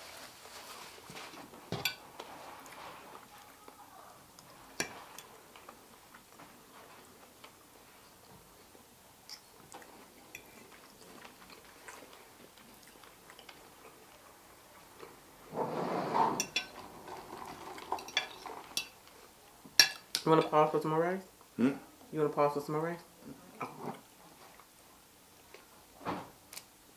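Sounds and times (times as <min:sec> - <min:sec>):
chewing: 0:07.4 - 0:15.2
forks scraping on plates: 0:15.9 - 0:19.0
cutlery clinking on plates: 0:16.4 - 0:16.8, 0:17.8 - 0:19.0, 0:19.8 - 0:20.5.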